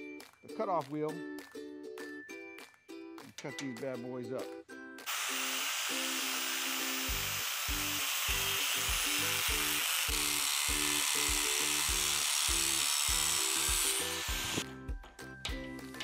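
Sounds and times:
background music with a beat: 0.0s - 5.1s, 13.1s - 16.0s
angle grinder cutting steel: 5.0s - 14.6s.

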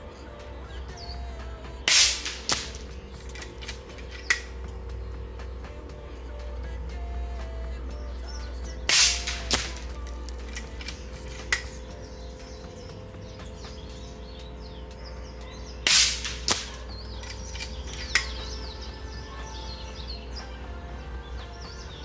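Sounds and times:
birds chirping: 0.0s - 22.0s
air rifle shots: 1.8s - 5.6s, 8.8s - 11.9s, 15.8s - 18.6s
short crack: 1.9s - 4.6s, 8.9s - 11.8s.

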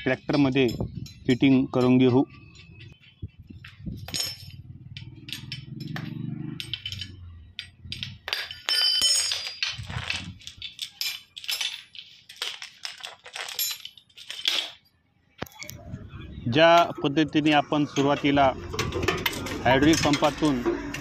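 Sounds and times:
metal clinks and scrapes on stone: 0.0s - 14.9s.

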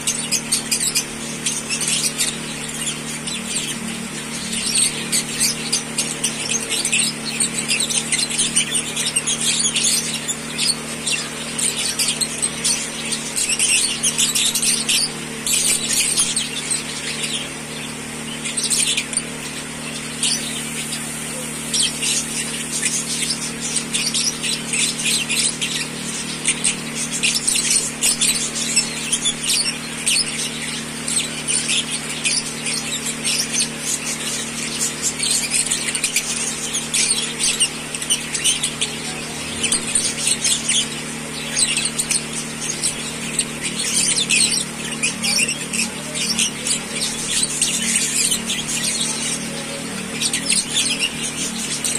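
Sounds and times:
lovebirds chirping and chattering: 0.0s - 51.9s
steady low hum: 0.0s - 51.9s.

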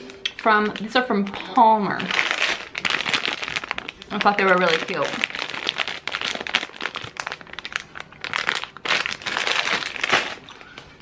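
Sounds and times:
plastic bag crinkling: 0.0s - 11.0s.

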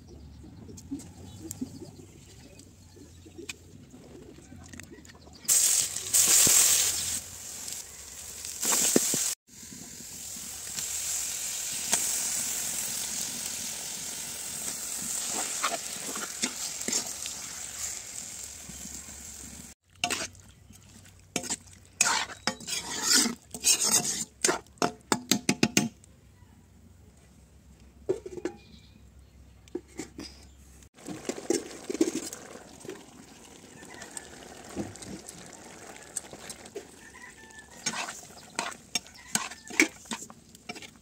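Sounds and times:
meat sizzling in hot oil: 5.5s - 20.2s, 31.0s - 39.8s
metal spoon scraping a pan: 15.2s - 17.2s, 20.0s - 20.4s, 21.4s - 24.7s, 36.5s - 41.0s.

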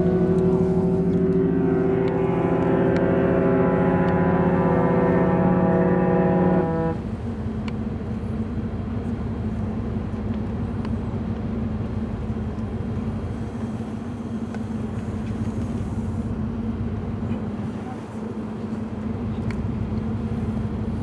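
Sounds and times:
ship's horn blast: 0.0s - 7.4s
sea rushing: 0.0s - 10.1s
ship machinery hum: 0.0s - 21.0s.

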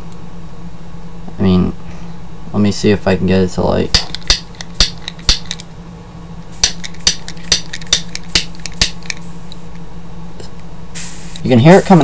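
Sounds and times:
faint hiss of escaping gas: 10.9s - 11.5s.

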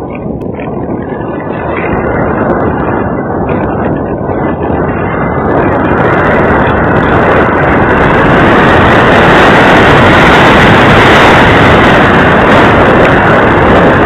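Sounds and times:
wind buffeting microphone: 0.0s - 14.0s.

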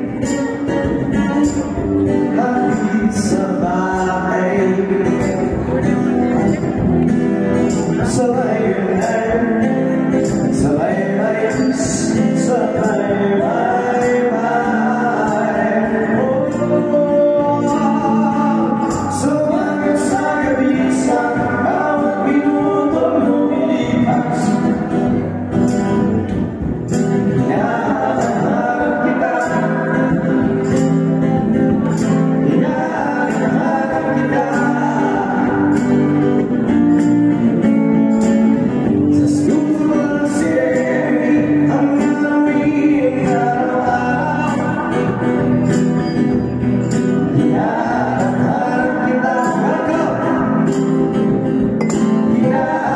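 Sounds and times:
man singing: 0.0s - 52.9s
strummed acoustic guitar: 0.0s - 52.9s.

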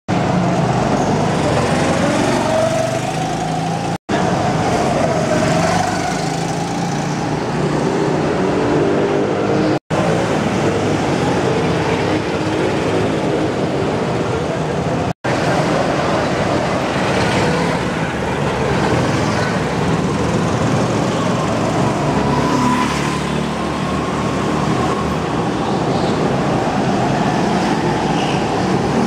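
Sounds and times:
go-kart engines running: 9.6s - 26.7s.

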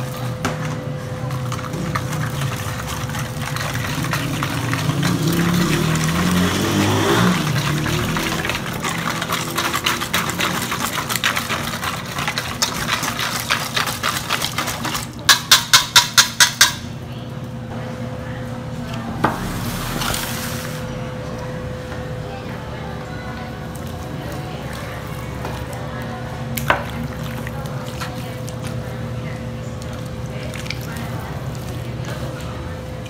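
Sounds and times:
steady low hum: 16.8s - 33.0s.

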